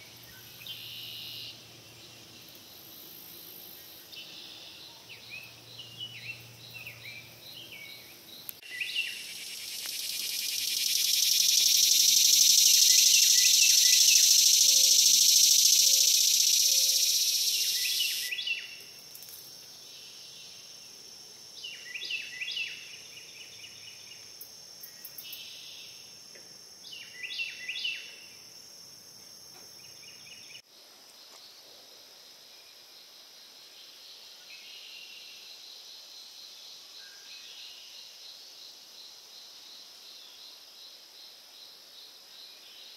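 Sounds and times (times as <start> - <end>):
cicada buzz: 0.0 - 19.3, 21.6 - 30.6
thin high insect tone: 0.0 - 42.9
songbirds chirping: 3.8 - 11.6.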